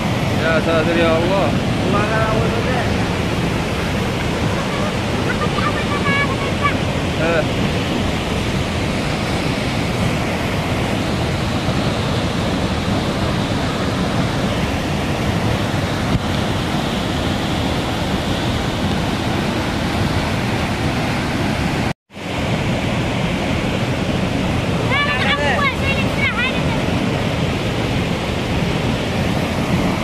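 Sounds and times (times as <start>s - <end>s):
waterfall rushing over rocks: 0.0s - 30.0s.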